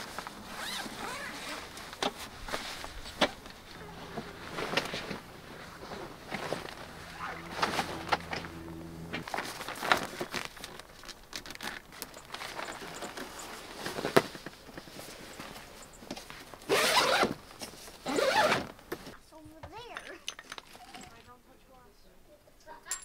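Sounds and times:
zipper being pulled: 0:00.5 - 0:01.8, 0:16.7 - 0:17.3, 0:18.1 - 0:18.7
low steady hum: 0:02.9 - 0:09.5.

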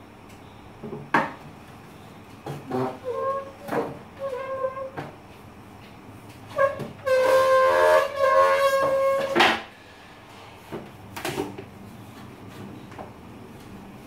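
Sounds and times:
chair squeaking high-pitched squeal: 0:02.5 - 0:05.1, 0:06.5 - 0:09.6.

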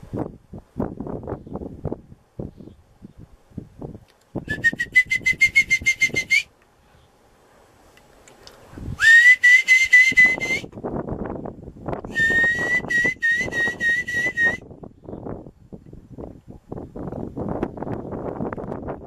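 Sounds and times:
high pulsing whistle tone: 0:04.4 - 0:06.5, 0:09.0 - 0:10.7, 0:12.1 - 0:14.7.

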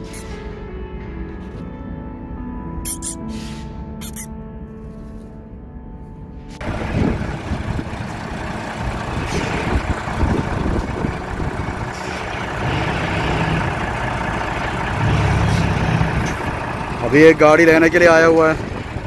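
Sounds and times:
diesel truck engine running: 0:06.6 - 0:19.0.

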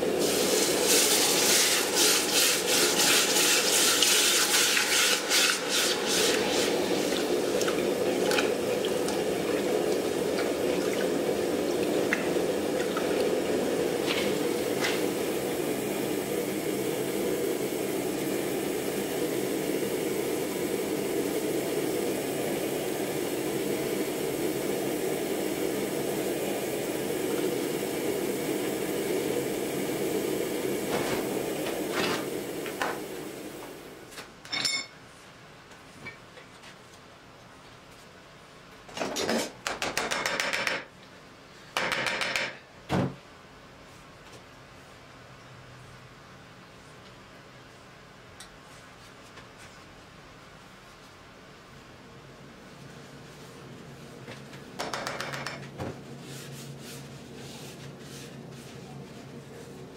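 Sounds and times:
forge burner hissing: 0:00.0 - 0:34.2.

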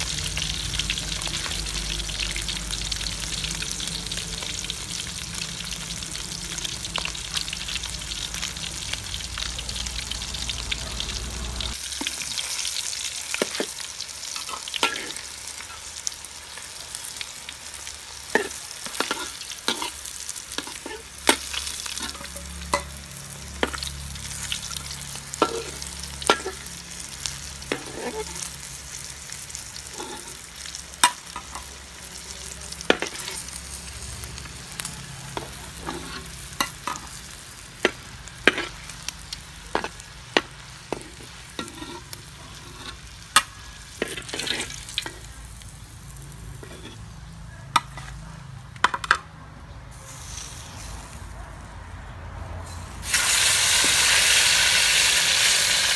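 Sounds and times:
fish sizzling in hot oil: 0:00.0 - 0:48.0, 0:49.9 - 0:51.3, 0:52.6 - 0:55.9
metal ladle scraping a wok: 0:18.3 - 0:28.6, 0:29.7 - 0:31.7, 0:35.3 - 0:37.2, 0:37.9 - 0:39.0, 0:39.7 - 0:45.3, 0:46.5 - 0:47.1.

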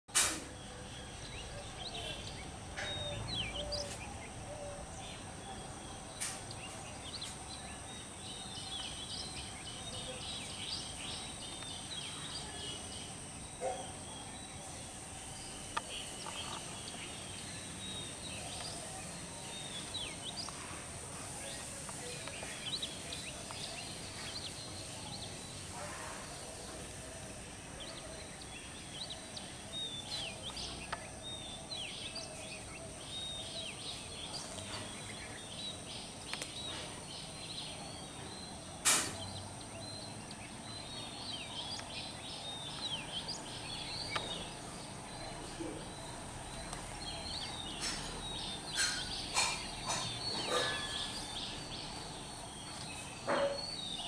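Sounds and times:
outdoor background hiss: 0:00.1 - 0:54.0
birds chirping and calling: 0:00.5 - 0:54.0.

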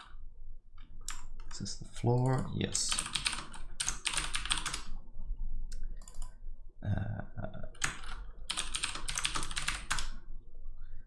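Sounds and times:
typing on computer keyboard: 0:02.8 - 0:04.9, 0:06.0 - 0:06.4, 0:07.8 - 0:10.2
brief low vocal sound: 0:06.8 - 0:07.7.

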